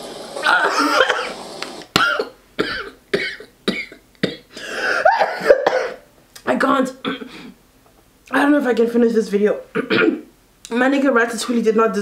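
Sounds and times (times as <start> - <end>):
woman gagging: 0.4 - 1.3
woman coughing: 0.5 - 1.3, 2.0 - 6.1, 7.0 - 7.5, 9.8 - 10.3.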